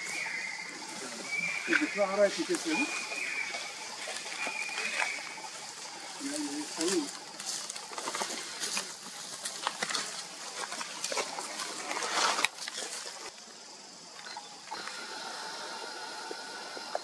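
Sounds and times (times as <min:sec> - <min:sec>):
twigs crackling: 0:00.0 - 0:13.4
leaves rustling: 0:00.0 - 0:14.0
faint high forest tones: 0:00.0 - 0:17.0.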